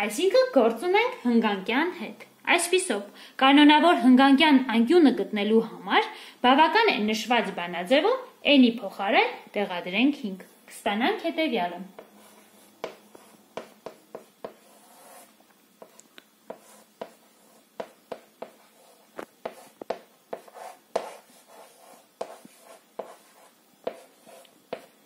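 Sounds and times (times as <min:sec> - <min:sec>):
chalk writing on a chalkboard: 0:12.0 - 0:25.0.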